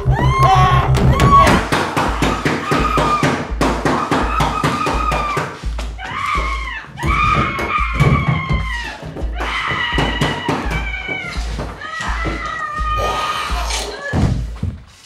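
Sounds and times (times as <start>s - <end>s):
low throbbing pulse: 0.0s - 2.4s.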